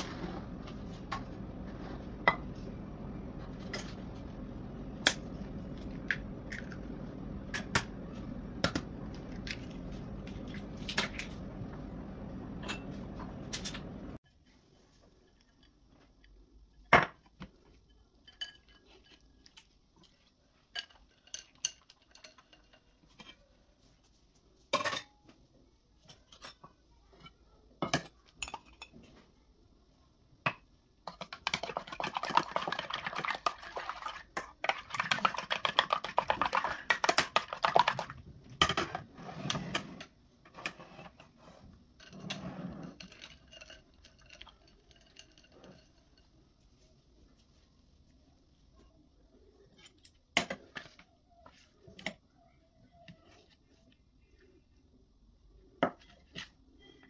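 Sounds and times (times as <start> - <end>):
utensils and dishes clinking: 12.5 - 14.2, 20.7 - 23.4, 42.0 - 46.4.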